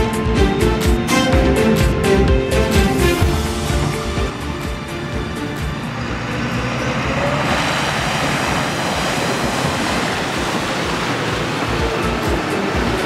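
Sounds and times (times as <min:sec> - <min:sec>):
tractor engine running: 0:00.0 - 0:13.0
tyres splashing through water: 0:02.6 - 0:13.0.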